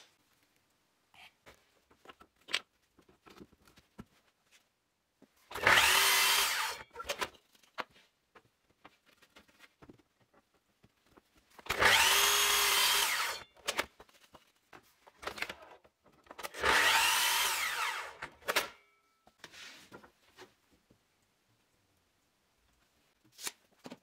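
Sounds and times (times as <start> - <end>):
mitre saw whining and cutting wood: 5.5 - 7.0, 11.7 - 13.4, 16.5 - 18.3.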